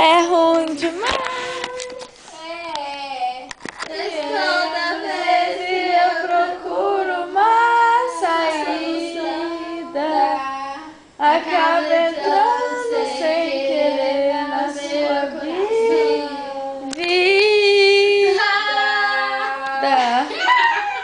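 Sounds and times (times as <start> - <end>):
high voice singing unaccompanied: 3.8 - 20.1.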